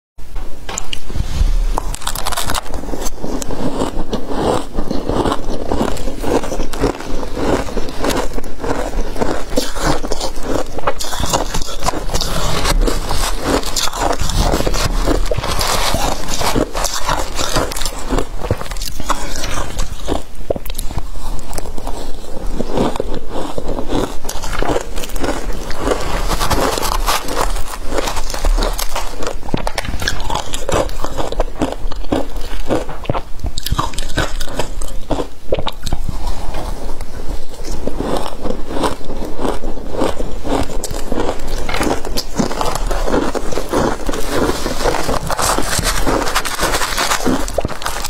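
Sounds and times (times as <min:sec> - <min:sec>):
ice crunching between teeth: 0:01.8 - 0:48.0
metal spoon scraping ice: 0:01.9 - 0:31.4, 0:40.8 - 0:48.0.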